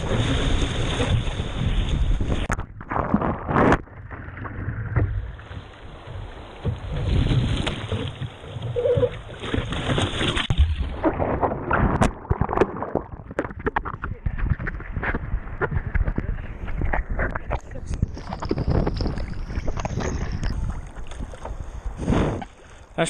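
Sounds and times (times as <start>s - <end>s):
water splashing against camera: 0.0s - 22.6s
underwater sound: 0.0s - 22.9s
wind buffeting microphone: 14.0s - 21.0s.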